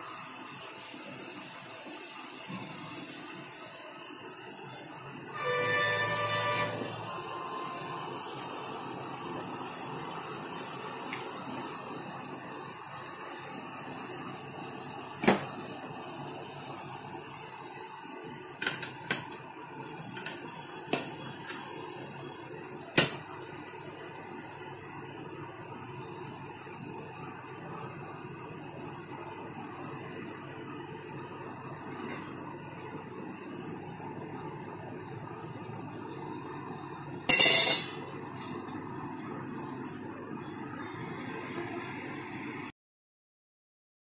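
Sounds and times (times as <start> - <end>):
steady steam hiss: 0.0 - 42.7
metal ring clinking on pot: 37.3 - 38.5.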